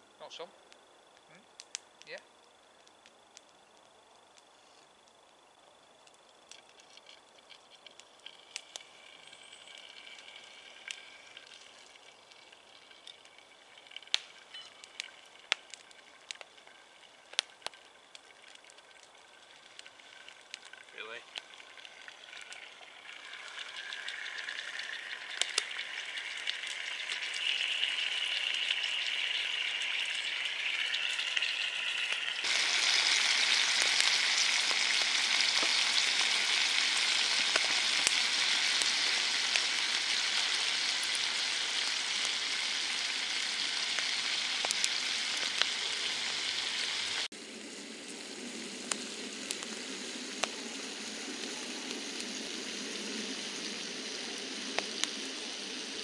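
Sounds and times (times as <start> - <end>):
bacon sizzling in a frying pan: 6.3 - 56.0.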